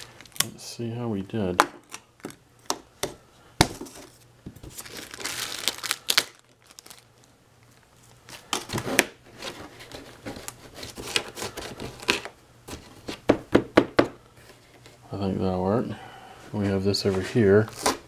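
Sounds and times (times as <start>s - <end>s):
plastic bag crinkling: 0.0s - 0.6s, 4.0s - 8.7s.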